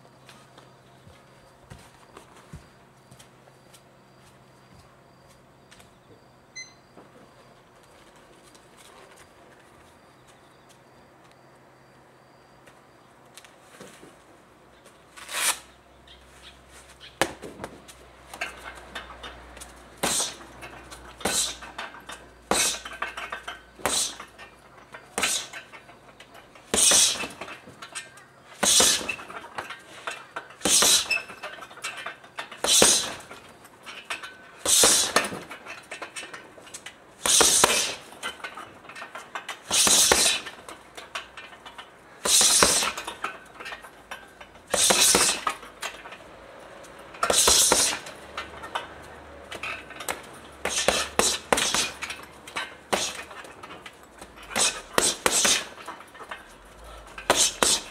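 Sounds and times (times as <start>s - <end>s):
punches on heavy bag: 26.7s - 27.3s, 28.6s - 29.2s, 37.2s - 38.0s, 47.3s - 48.1s, 50.6s - 52.0s, 54.5s - 55.7s, 57.3s - 57.9s.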